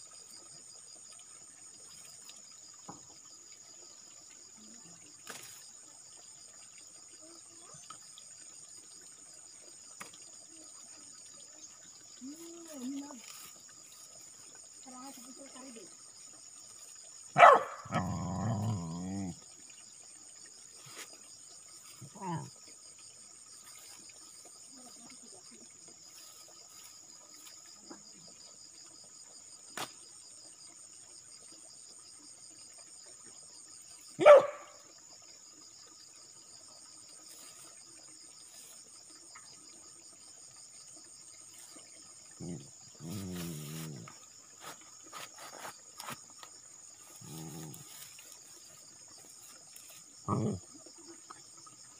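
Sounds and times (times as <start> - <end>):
insects chirring: 0.0 - 51.9
dog barking: 17.4 - 18.2, 34.2 - 34.8.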